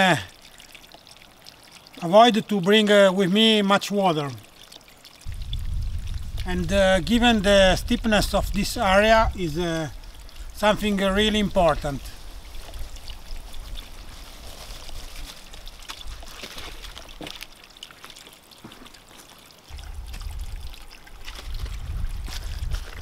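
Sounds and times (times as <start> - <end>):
spring water trickling: 0.0 - 23.0
low rumble: 5.3 - 9.3.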